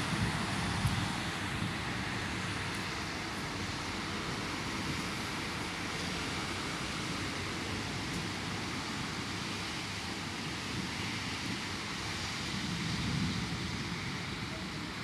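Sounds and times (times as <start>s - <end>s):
rain falling with wind: 0.0s - 15.0s.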